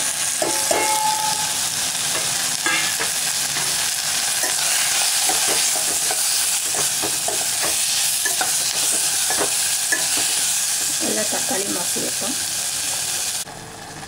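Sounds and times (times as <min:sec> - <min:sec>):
food sizzling in hot oil: 0:00.0 - 0:13.8
spoon knocking and scraping pot: 0:00.4 - 0:01.5, 0:02.1 - 0:03.8, 0:04.4 - 0:11.0.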